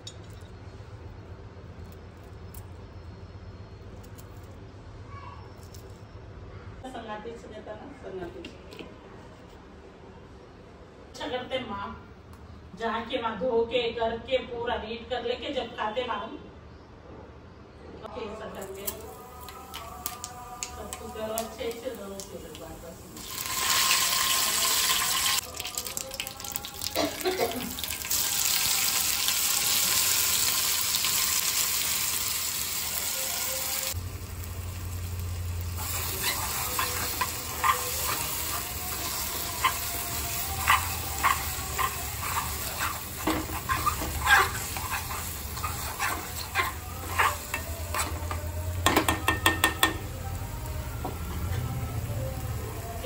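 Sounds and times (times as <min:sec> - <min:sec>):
leaves sizzling in hot oil: 0:18.7 - 0:50.0
metal spoon scraping pan: 0:35.8 - 0:50.0.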